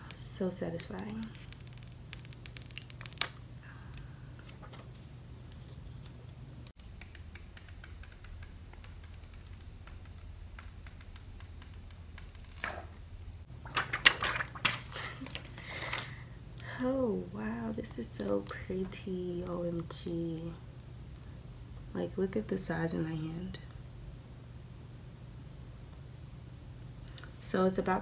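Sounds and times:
film crackling and crinkling: 0:00.0 - 0:22.0
plastic film being peeled off: 0:00.9 - 0:03.4, 0:11.0 - 0:13.0, 0:13.6 - 0:16.2.

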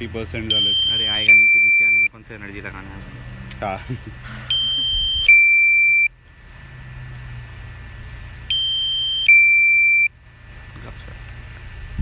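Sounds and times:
steady low hum: 0:00.0 - 0:12.0
two-tone electronic warning alarm: 0:00.4 - 0:02.2, 0:04.5 - 0:06.1, 0:08.5 - 0:10.1.

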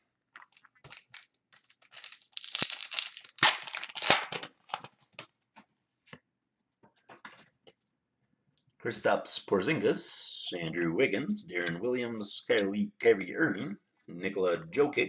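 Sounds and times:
foil wrapper tearing and crinkling: 0:00.8 - 0:05.0.

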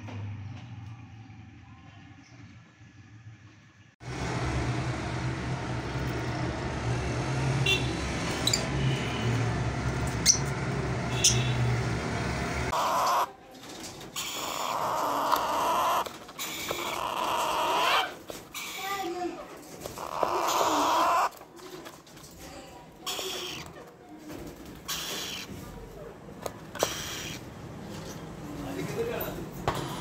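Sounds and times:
wavering bird calls: 0:12.7 - 0:13.3, 0:14.1 - 0:18.9, 0:19.9 - 0:21.4, 0:23.0 - 0:23.8, 0:24.8 - 0:25.6, 0:26.7 - 0:28.2.

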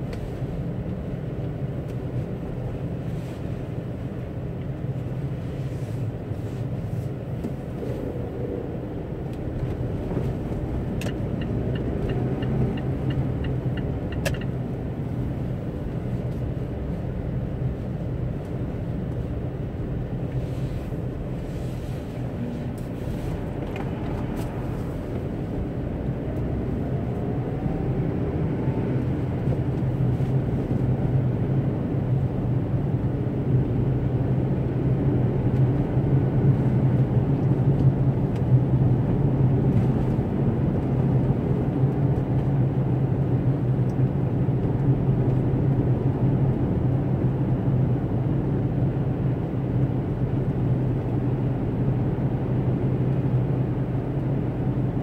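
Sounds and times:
car engine hum: 0:00.0 - 0:55.0
tyre and road rumble: 0:04.9 - 0:46.8
turn signal ticking: 0:09.2 - 0:16.5.

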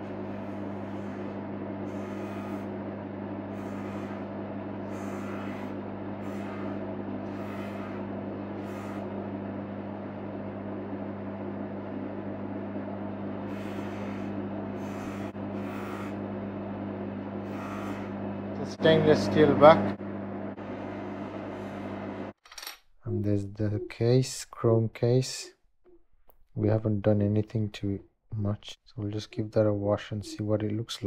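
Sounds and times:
polishing motor humming: 0:00.0 - 0:22.3.

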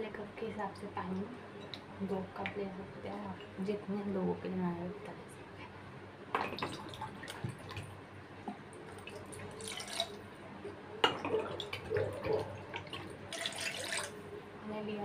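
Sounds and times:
water pouring into a cup: 0:08.8 - 0:10.3, 0:11.1 - 0:14.2.

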